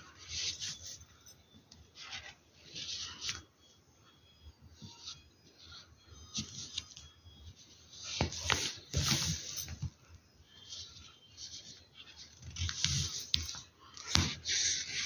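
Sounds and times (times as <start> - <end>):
paper rustling on cloth: 4.9 - 15.0.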